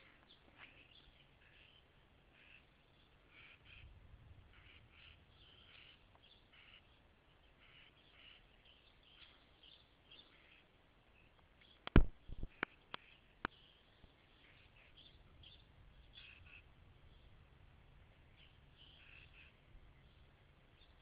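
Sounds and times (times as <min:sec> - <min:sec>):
small birds chirping: 0:00.0 - 0:21.0
microphone handling knocks: 0:11.9 - 0:12.6.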